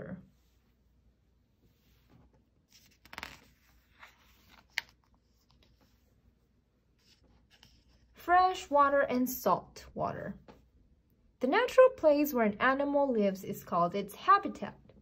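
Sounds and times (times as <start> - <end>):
book page turning rustle: 2.0 - 6.1, 6.9 - 8.1.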